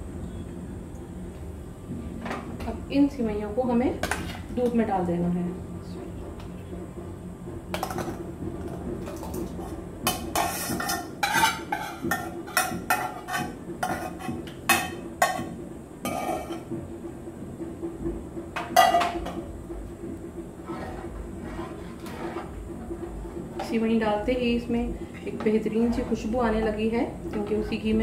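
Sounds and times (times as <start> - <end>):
stirring in a pot: 9.0 - 16.7
spoon scraping a metal pan: 10.1 - 15.5, 16.1 - 16.6.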